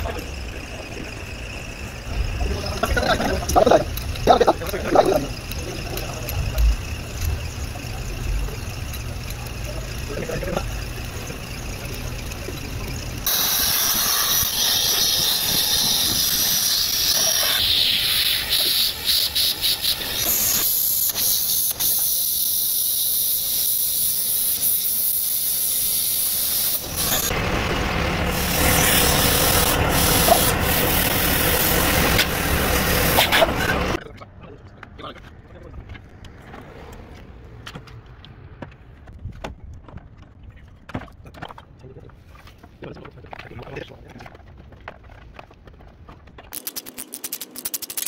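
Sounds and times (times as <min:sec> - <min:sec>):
compressed air hissing: 0:00.0 - 0:27.3, 0:28.3 - 0:34.0.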